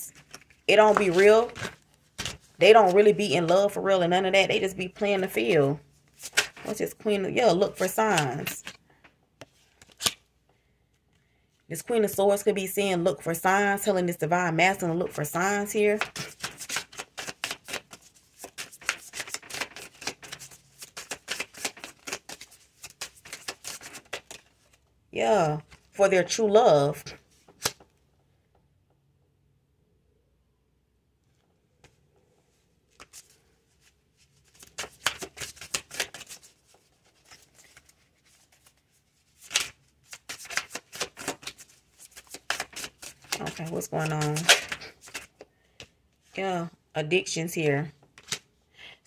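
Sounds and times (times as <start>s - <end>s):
cards being shuffled: 0.1s - 3.6s, 6.1s - 6.8s, 9.4s - 10.2s, 15.9s - 24.8s, 27.4s - 27.9s, 32.9s - 45.9s, 48.1s - 48.4s.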